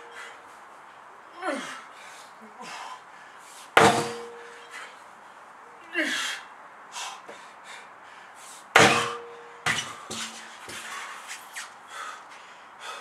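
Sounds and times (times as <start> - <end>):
person breathing hard: 0.0 - 3.8, 6.0 - 8.7, 11.8 - 13.0
sledgehammer striking rubber tyre: 3.8 - 4.6, 8.8 - 10.8.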